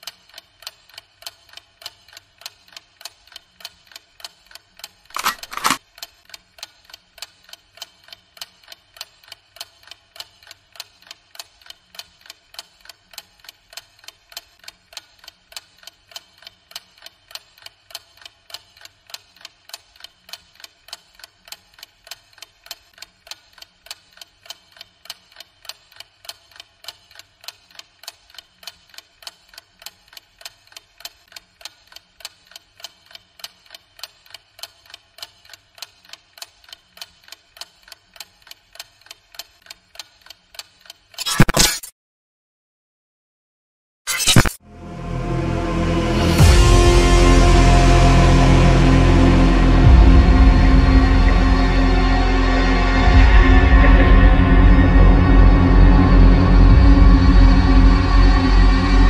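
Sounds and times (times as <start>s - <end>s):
clock ticking: 0.0s - 41.2s.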